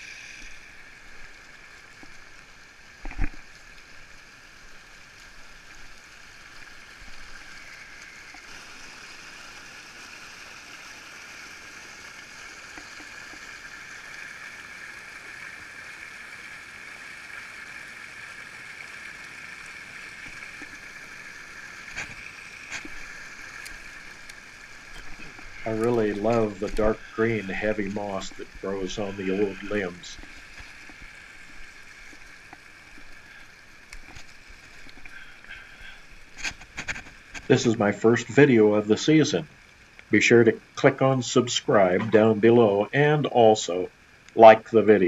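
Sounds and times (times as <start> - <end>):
stream babbling over debris: 0.0 - 45.0.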